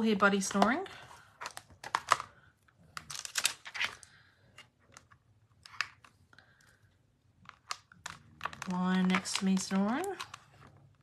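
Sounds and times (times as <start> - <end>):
plastic case clicks and rustles: 1.4 - 2.3.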